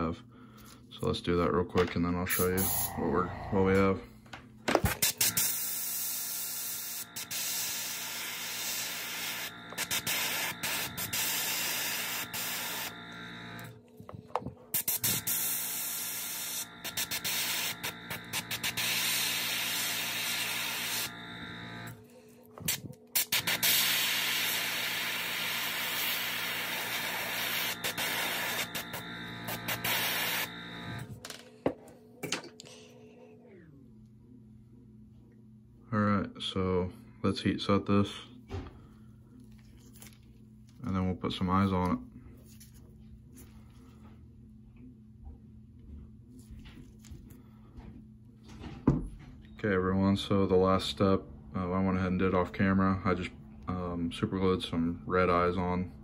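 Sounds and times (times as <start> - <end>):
airbrush spraying hiss: 2.3 - 3.1, 23.2 - 30.5
airbrush hissing: 2.3 - 4.0, 5.4 - 13.6, 14.8 - 21.2, 23.2 - 30.8.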